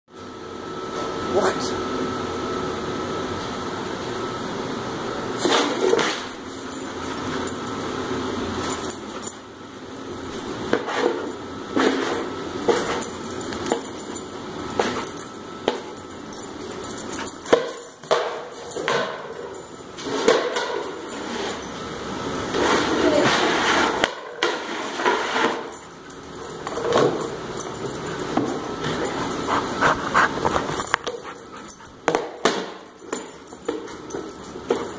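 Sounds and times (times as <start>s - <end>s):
frisbee scraping on concrete: 29.6s - 31.4s.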